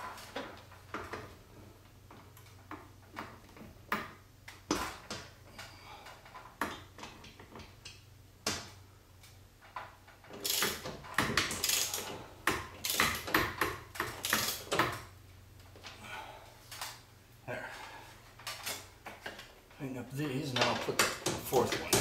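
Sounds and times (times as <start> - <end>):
ratchet wrench clicking: 10.4 - 10.9, 11.5 - 12.1, 12.8 - 13.4, 14.0 - 14.8.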